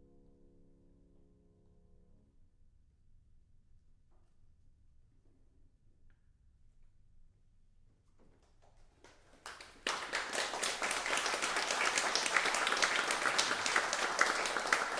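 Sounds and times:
audience applause: 9.4 - 14.9.

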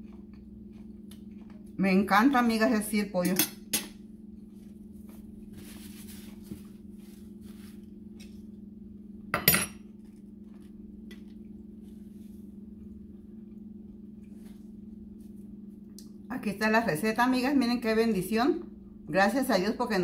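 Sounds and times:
steady low hum: 0.0 - 20.0
cutlery clattering on a plate: 9.4 - 9.8.

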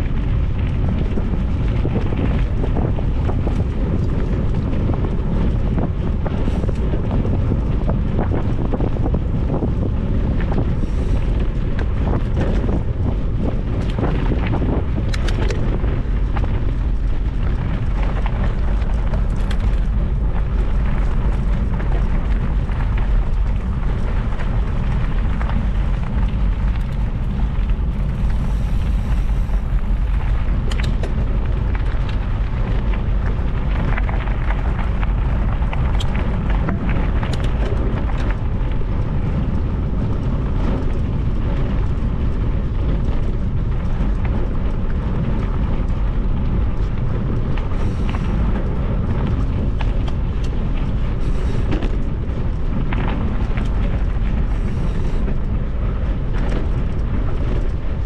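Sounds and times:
faint clicks and rattles: 0.0 - 58.0
wind buffeting microphone: 0.0 - 58.0.

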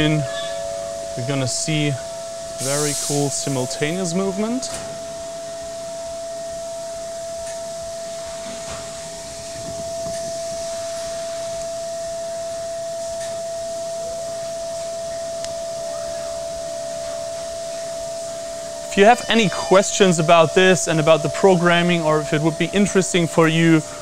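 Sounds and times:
milling spindle high whine: 0.0 - 24.0
coolant spray hiss: 2.6 - 5.0.

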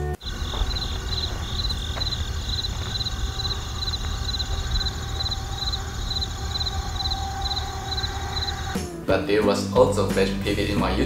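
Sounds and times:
crickets chirping: 0.0 - 8.8
steady low rumble: 0.2 - 8.7.

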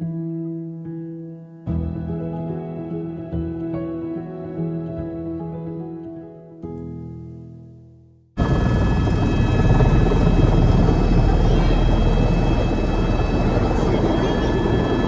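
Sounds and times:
helicopter rotor and engine: 8.4 - 15.0
turbine whine: 8.4 - 15.0.

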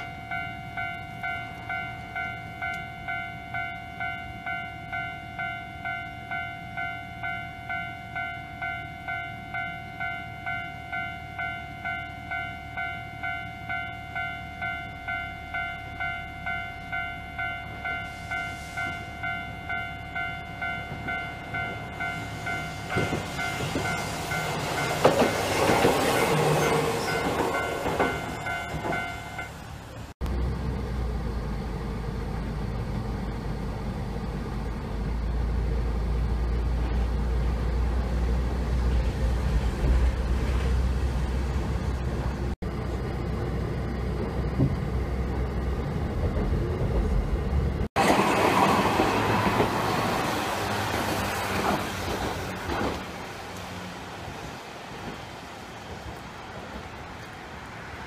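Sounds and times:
level crossing bell ringing: 0.0 - 25.0, 26.6 - 29.6
tram passing on tracks: 0.0 - 58.0
steady low rumble: 30.2 - 47.9.

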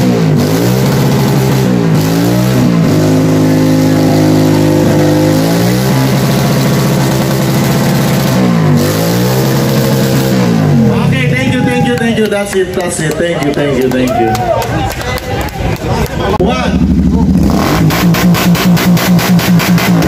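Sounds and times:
motorcycle engine revving: 0.0 - 11.6, 16.2 - 20.0.

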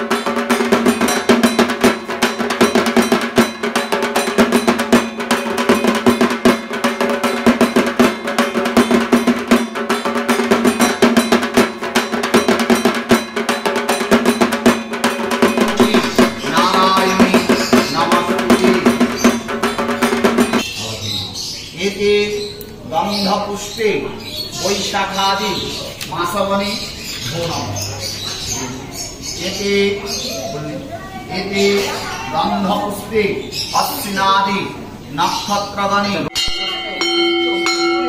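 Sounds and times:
fast drumming: 0.0 - 20.6.

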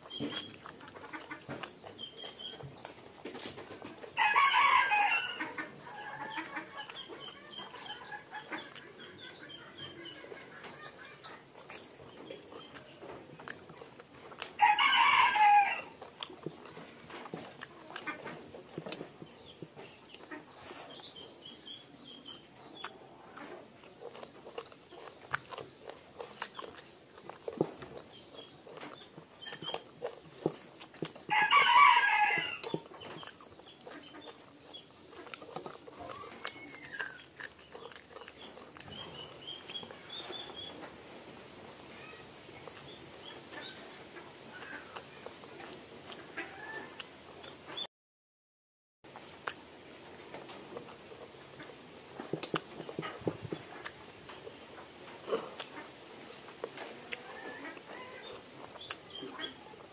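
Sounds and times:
chewing and lip smacking: 0.0 - 47.8, 49.1 - 59.9
rooster crowing: 4.2 - 5.4, 14.6 - 16.0, 31.3 - 32.8
faint high chirping: 17.8 - 47.6.

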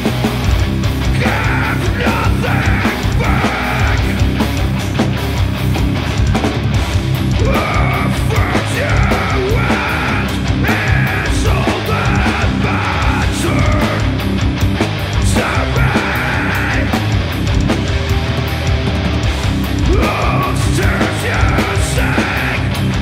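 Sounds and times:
bass guitar: 0.0 - 23.0
distorted electric guitar: 0.0 - 23.0
drums: 0.0 - 23.0
vocalist singing: 1.0 - 4.6, 7.3 - 14.4, 15.1 - 17.2, 19.7 - 23.0.

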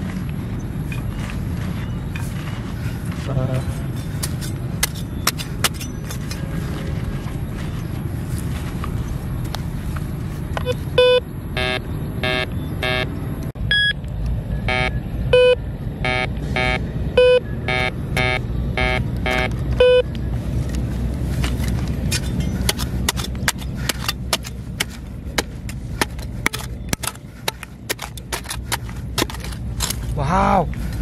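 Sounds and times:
hand trowel digging stony soil: 0.9 - 9.0, 20.5 - 31.0
metal detector beeping: 10.6 - 20.1.

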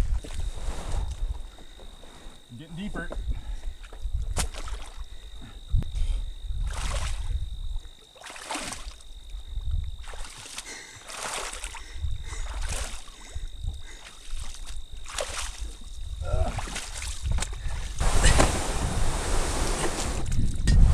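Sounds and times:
wading splashing in water: 4.3 - 5.2, 6.6 - 20.2.

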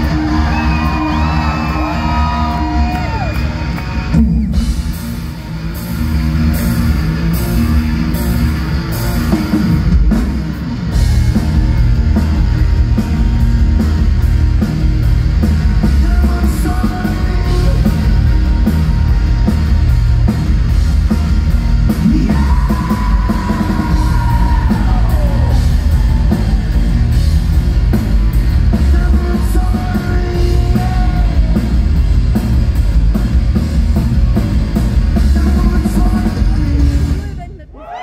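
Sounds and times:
distorted electric guitar: 0.0 - 37.5
bass guitar: 0.0 - 37.7
drums: 0.0 - 38.0.

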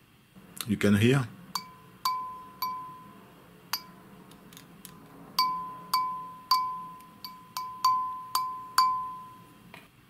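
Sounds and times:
metal disc tapped ringing: 1.6 - 4.0, 5.4 - 9.5.

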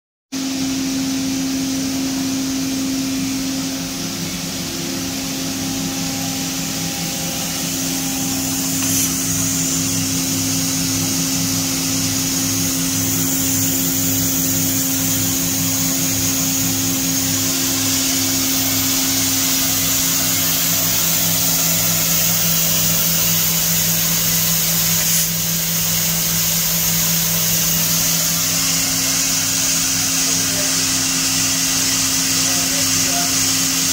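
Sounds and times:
machine hum with low pulse: 0.4 - 33.9
high hiss: 4.5 - 30.7.

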